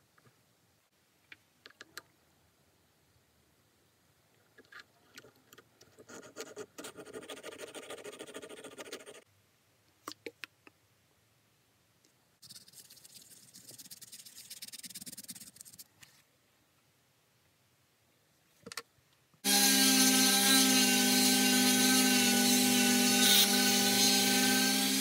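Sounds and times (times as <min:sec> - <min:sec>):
paper towel rubbing metal: 0:12.4 - 0:15.9.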